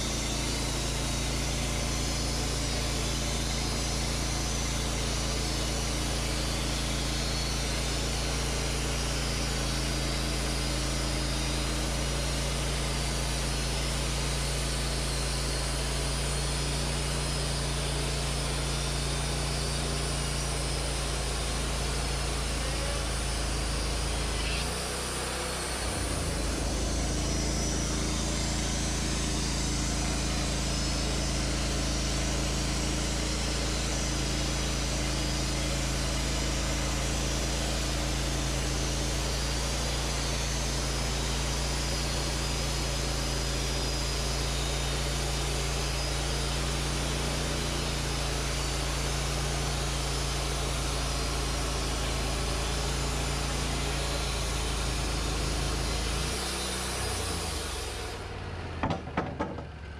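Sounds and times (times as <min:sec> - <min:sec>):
sawmill engine running under load: 0:00.0 - 0:59.9.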